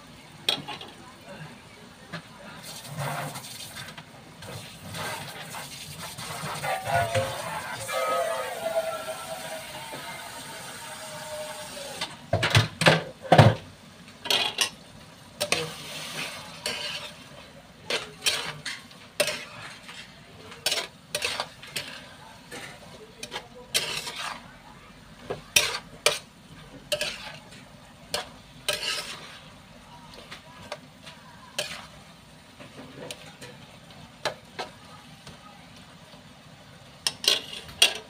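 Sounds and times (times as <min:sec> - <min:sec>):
faint sizzle: 0:00.0 - 0:38.0
spatula scraping frying pan: 0:02.6 - 0:12.1, 0:14.2 - 0:14.8, 0:15.4 - 0:24.6, 0:25.2 - 0:33.6, 0:37.0 - 0:38.0.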